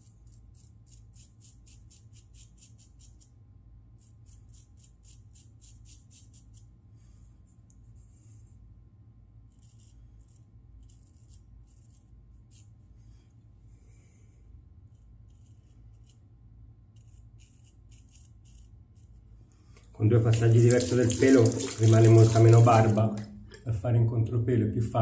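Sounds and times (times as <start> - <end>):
razor scraping stubble: 0.0 - 3.4, 4.0 - 6.7, 9.5 - 12.8, 14.8 - 19.3
faint low hum: 0.0 - 25.0.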